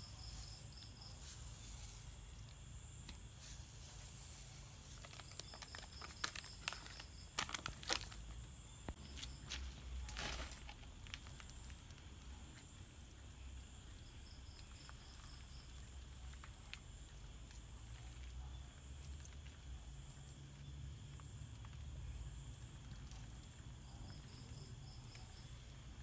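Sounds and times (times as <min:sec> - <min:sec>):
rustle: 0:00.0 - 0:08.2
crickets trilling: 0:00.0 - 0:26.0.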